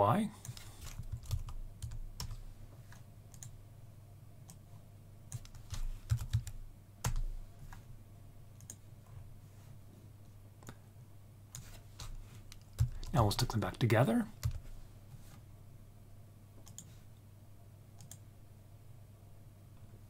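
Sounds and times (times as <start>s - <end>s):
faint low hum: 0.0s - 20.0s
keyboard typing: 0.4s - 3.6s, 5.3s - 7.8s, 8.6s - 8.8s, 11.5s - 13.6s, 14.4s - 14.6s, 16.6s - 16.9s, 18.0s - 18.2s
mouse clicks: 16.6s - 16.9s.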